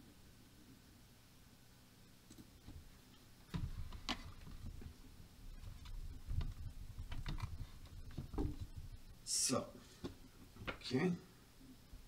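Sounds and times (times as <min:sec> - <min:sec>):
dull bumps: 0:03.5 - 0:09.1.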